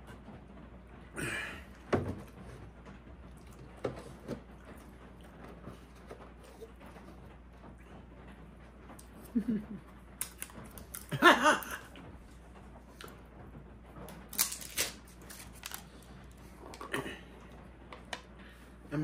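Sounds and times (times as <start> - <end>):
crinkling rustle: 12.0 - 16.9.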